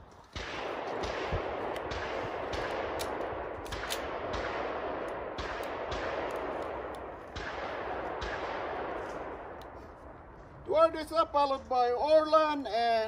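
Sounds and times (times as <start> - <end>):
handgun shots: 0.4 - 9.6.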